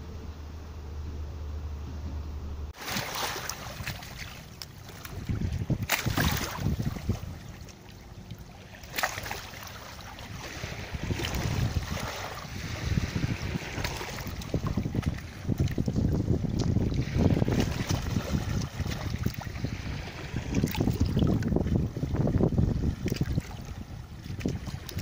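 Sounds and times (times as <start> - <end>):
small waves lapping on pebbles: 2.8 - 21.5
wind buffeting microphone: 3.6 - 8.5, 9.2 - 25.0.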